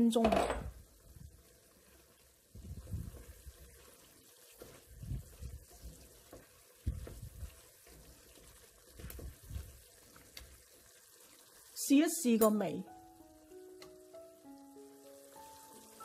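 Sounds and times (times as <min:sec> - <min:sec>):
spatula stirring in a pan: 0:00.9 - 0:11.7.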